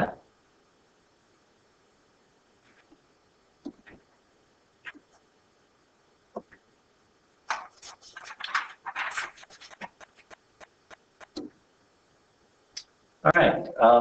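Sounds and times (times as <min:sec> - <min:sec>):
scratchy clicks and rustles: 0:07.5 - 0:11.5.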